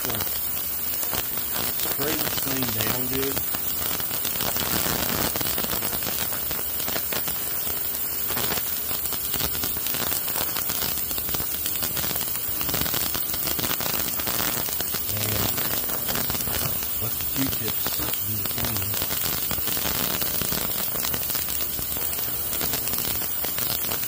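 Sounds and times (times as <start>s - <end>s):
parts cleaner hissing: 15.1s - 19.0s.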